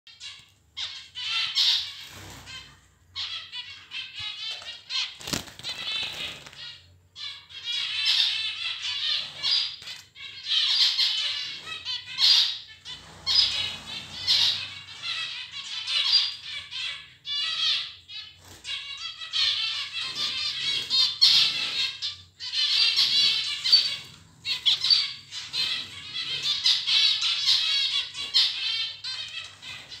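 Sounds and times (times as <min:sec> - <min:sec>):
finches chattering and calling: 0:00.1 - 0:30.0
wing flutters: 0:05.0 - 0:06.7.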